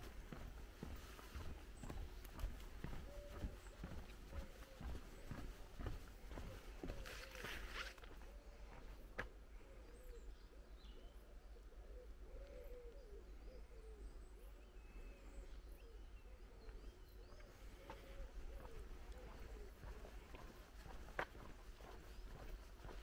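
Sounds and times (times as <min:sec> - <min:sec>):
small birds chirping: 0:00.0 - 0:23.0
rustle: 0:07.0 - 0:08.2.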